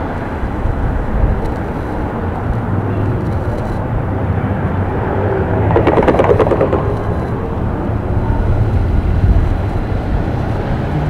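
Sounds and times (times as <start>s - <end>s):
road traffic rumble: 0.0s - 11.0s
rapid clattering: 5.6s - 8.1s.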